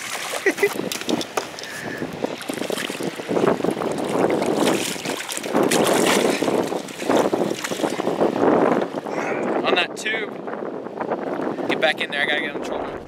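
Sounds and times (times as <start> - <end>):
water lapping against boat: 0.0 - 9.6
wind gusting across microphone: 0.0 - 13.0.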